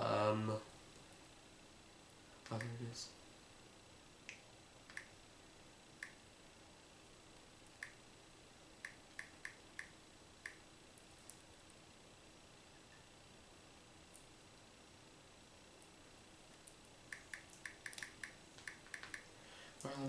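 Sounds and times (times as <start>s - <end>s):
fingers tapping touchscreen: 17.1s - 19.3s.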